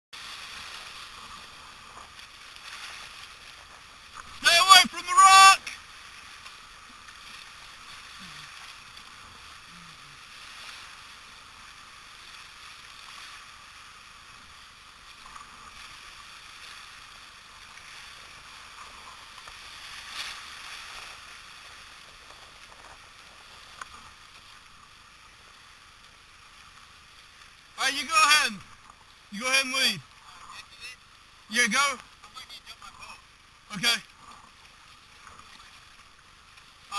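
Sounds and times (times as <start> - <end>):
water splashes: 0.2 - 36.9
river rapids rushing: 4.3 - 5.8.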